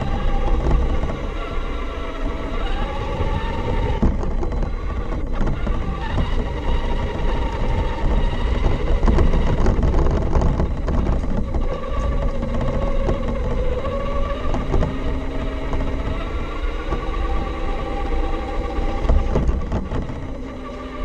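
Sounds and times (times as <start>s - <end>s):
electric motor whine: 0.0s - 21.0s
tyres and drivetrain rumbling: 0.0s - 21.0s.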